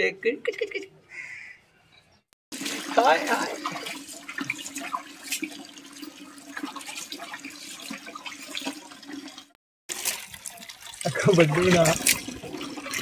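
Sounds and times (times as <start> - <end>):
tap water running into basin: 2.5 - 13.0
water splashing: 2.5 - 13.0.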